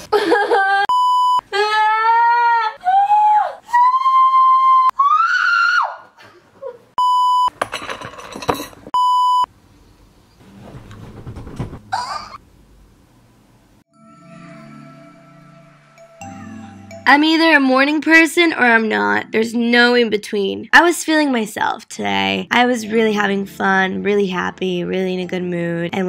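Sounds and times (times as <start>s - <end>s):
woman whining and wailing: 1.5s - 6.9s.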